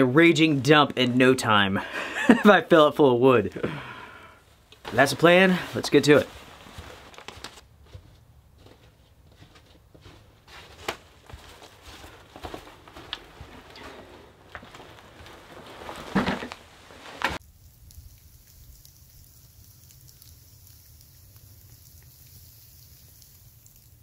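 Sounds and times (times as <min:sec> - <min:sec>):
faint outdoor hiss: 0:00.0 - 0:24.0
footsteps crunching through snow: 0:04.8 - 0:17.4
firewood sticks rattling: 0:12.4 - 0:17.4
firewood clattering down: 0:12.8 - 0:17.4.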